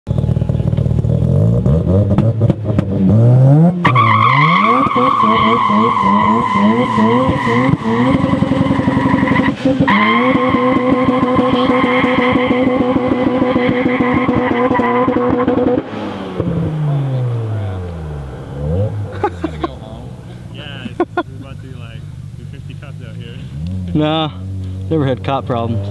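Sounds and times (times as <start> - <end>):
rotary engine revving: 0.1 - 25.9
tyres spinning and squealing: 3.8 - 17.8.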